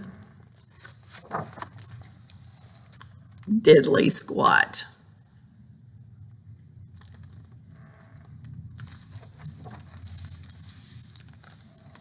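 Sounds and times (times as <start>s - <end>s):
book pages rustling: 0.0s - 3.5s, 6.9s - 12.0s.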